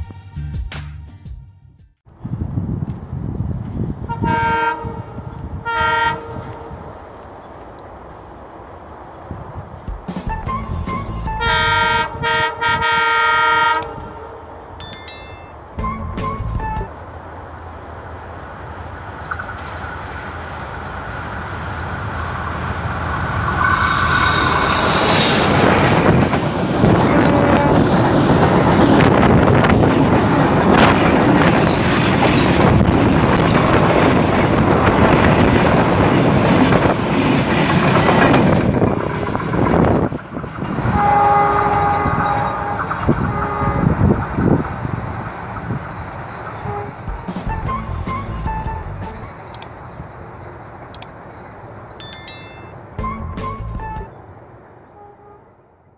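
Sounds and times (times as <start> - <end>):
train rumble: 2.1 - 14.8, 15.6 - 52.0
train horn: 4.1 - 6.8, 11.0 - 14.5, 23.6 - 26.0, 26.8 - 28.1, 40.8 - 44.2, 46.6 - 47.6, 54.9 - 55.7
wheels clattering over rail joints: 25.4 - 40.8.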